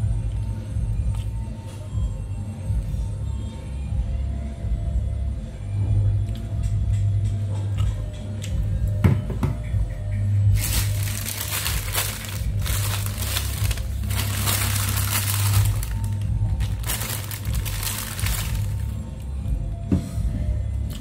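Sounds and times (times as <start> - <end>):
background music: 0.0 - 21.0
plastic bag crinkling: 10.6 - 19.2.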